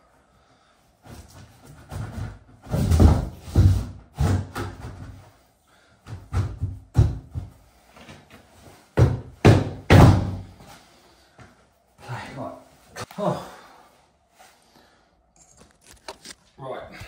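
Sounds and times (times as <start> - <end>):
shower tray knocks and thuds: 6.1 - 7.5.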